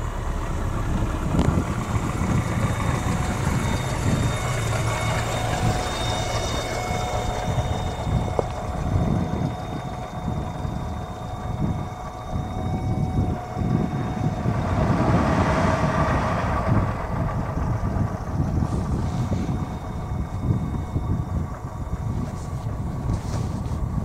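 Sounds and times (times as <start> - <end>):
wind buffeting microphone: 0.0 - 24.0
car tyres hissing on road: 13.2 - 24.0.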